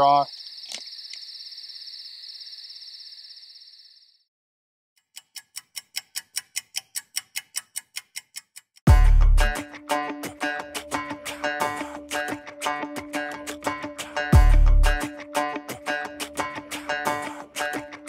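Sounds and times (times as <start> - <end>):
crickets chirping: 0.0 - 4.3
clock ticking: 5.0 - 8.9
guitar music: 8.9 - 18.0.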